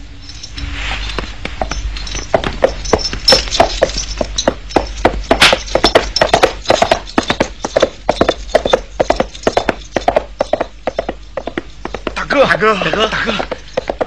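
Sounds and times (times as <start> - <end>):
horses' hooves clattering: 0.0 - 14.0.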